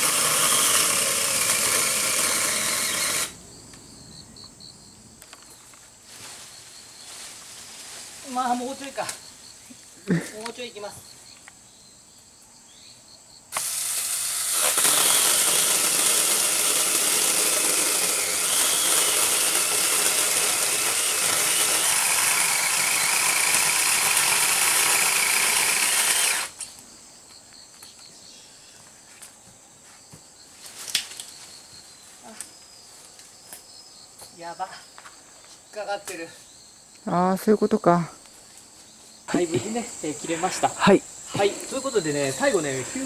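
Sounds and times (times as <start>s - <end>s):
electric chainsaw cutting tree trunk: 0.0s - 3.4s, 13.5s - 26.6s.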